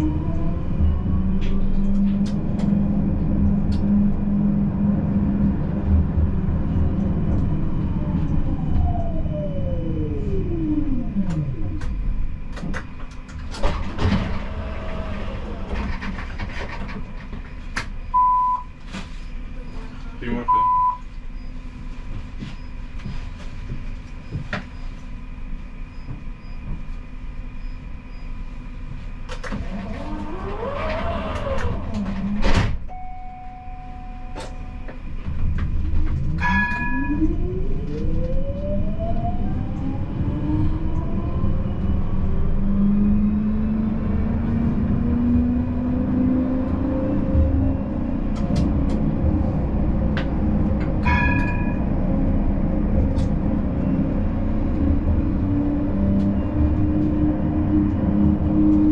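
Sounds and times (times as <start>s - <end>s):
tram motor whine: 0.0s - 58.9s
tram running rumble: 0.0s - 58.9s
short beeps: 18.1s - 18.7s, 20.4s - 21.5s, 32.9s - 34.9s.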